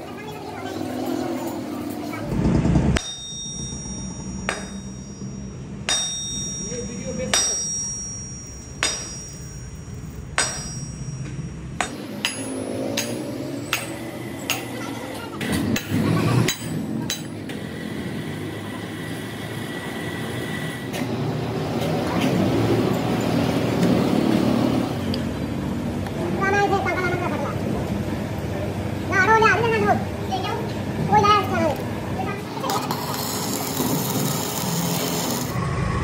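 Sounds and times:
steady high whine: 1.6 - 14.7, 31.0 - 36.0
hammer blows on metal: 3.0 - 14.8.

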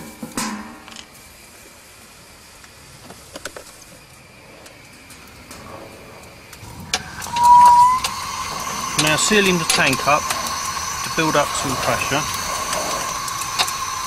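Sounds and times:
liquid nitrogen hissing: 0.0 - 14.0
gas whistling through fitting: 6.4 - 14.0.

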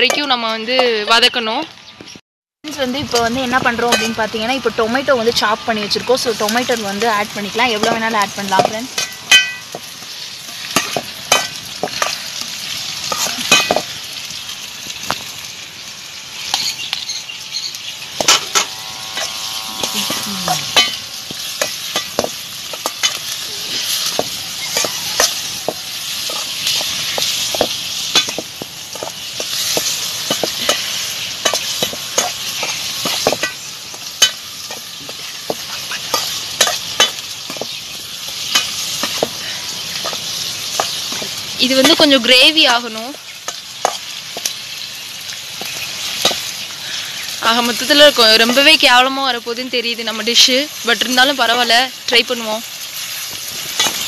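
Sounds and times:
onions and tomatoes sizzling in pan: 0.0 - 54.0
steel spoon scraping a pan: 3.1 - 14.0, 16.2 - 44.5, 45.6 - 48.7, 52.2 - 54.0.

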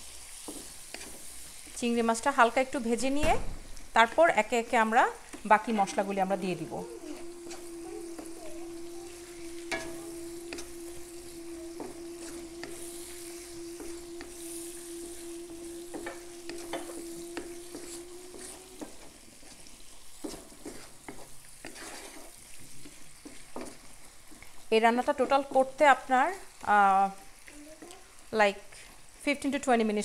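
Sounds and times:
food sizzling in oil: 0.0 - 30.0
wooden spatula scraping pan: 0.3 - 1.8, 5.1 - 24.6
steady hum: 4.0 - 20.9.

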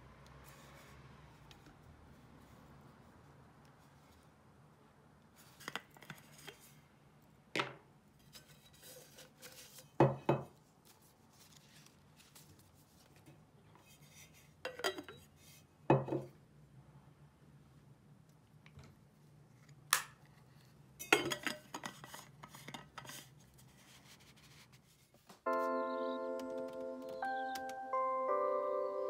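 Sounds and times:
cup and lid knocking on table: 10.0 - 10.5.

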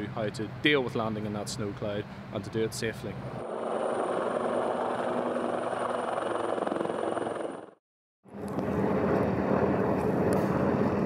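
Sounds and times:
helicopter rotors and engines running: 0.0 - 11.0
helicopter hovering: 3.0 - 11.0.

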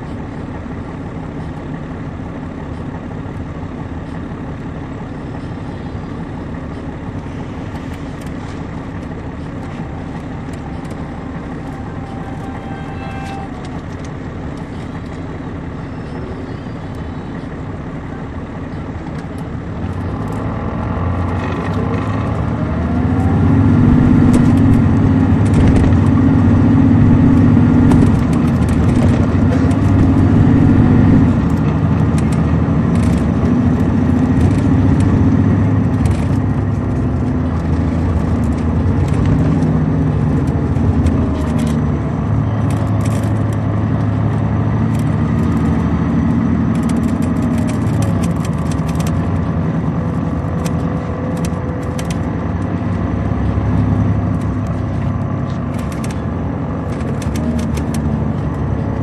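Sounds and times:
bus diesel engine running: 0.0 - 59.0
light rattles and clicks: 24.0 - 59.0.

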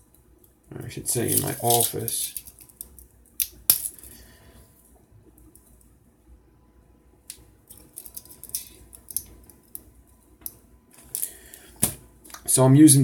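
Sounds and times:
pliers and wire clicking and rustling: 1.2 - 4.2, 7.3 - 12.0.

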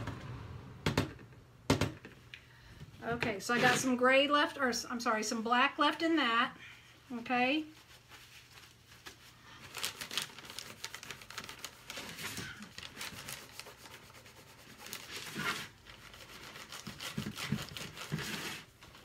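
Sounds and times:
tissue crinkling and rubbing: 7.5 - 19.0.

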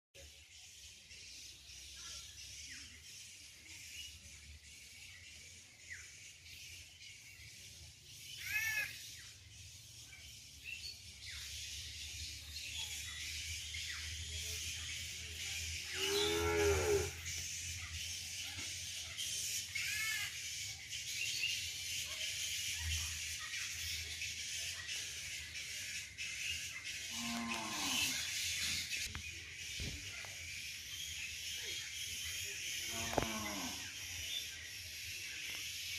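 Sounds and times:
cows mooing: 16.0 - 17.2, 27.1 - 28.2.

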